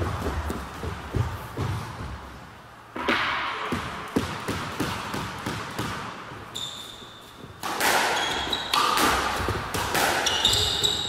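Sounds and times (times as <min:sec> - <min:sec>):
squash ball smacking: 0:03.0 - 0:06.5, 0:07.5 - 0:11.0
shoes squeaking on wooden floor: 0:06.5 - 0:07.6, 0:08.2 - 0:08.8, 0:10.2 - 0:11.0.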